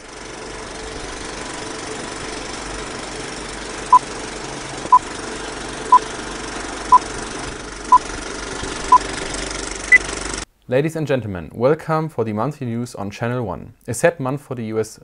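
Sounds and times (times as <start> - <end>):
film projector whirring rattle: 0.0 - 10.5.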